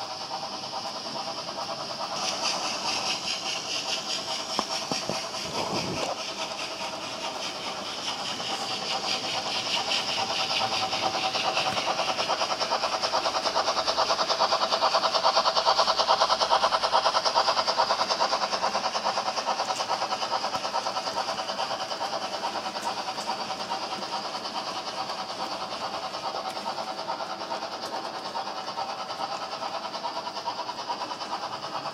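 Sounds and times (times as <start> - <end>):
steady whine: 0.0 - 14.0
model train wheels clattering: 0.0 - 31.9.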